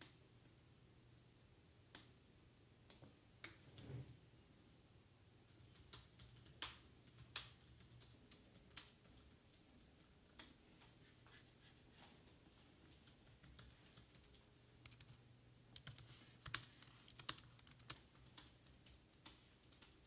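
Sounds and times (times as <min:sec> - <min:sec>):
typing on laptop keyboard: 0:05.5 - 0:10.6, 0:12.8 - 0:20.0.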